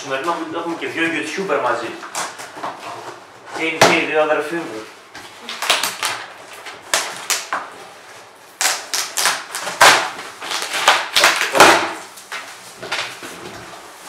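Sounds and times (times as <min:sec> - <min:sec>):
packing tape tearing: 0:05.4 - 0:07.7, 0:08.5 - 0:13.6.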